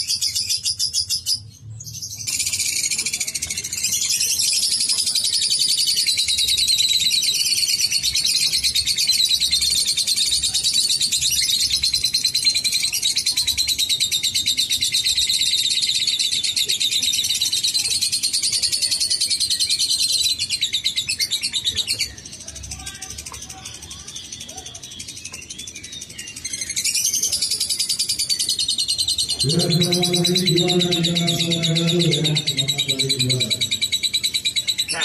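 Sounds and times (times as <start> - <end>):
lovebird chattering trills: 26.2 - 35.0.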